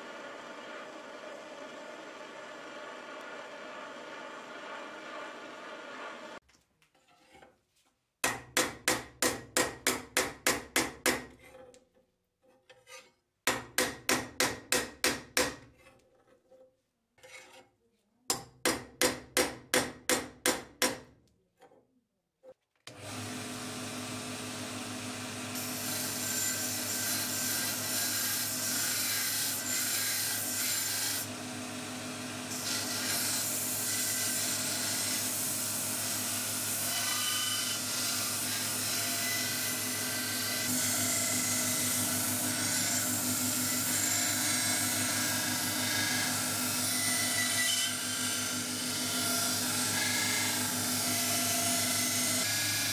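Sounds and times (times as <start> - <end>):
belt grinder grinding blade: 25.4 - 31.3, 32.4 - 52.9.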